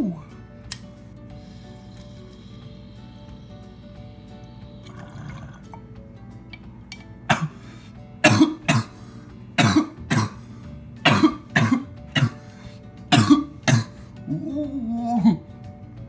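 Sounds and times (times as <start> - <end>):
man coughing: 7.3 - 7.6, 8.2 - 9.0, 9.6 - 10.4, 11.0 - 12.5, 13.1 - 14.0.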